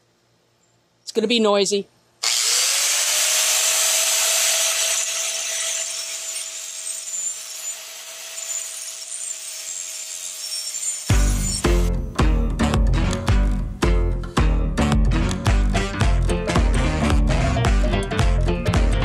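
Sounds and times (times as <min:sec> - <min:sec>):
grinder motor whine: 0:02.2 - 0:11.9
angle grinder grinding metal: 0:02.2 - 0:12.0
guitar music: 0:11.1 - 0:19.0.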